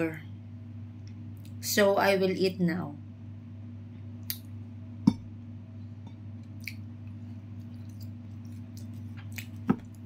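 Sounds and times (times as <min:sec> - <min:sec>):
low steady hum: 0:00.0 - 0:10.0
crisp chewing crunches: 0:07.5 - 0:10.0.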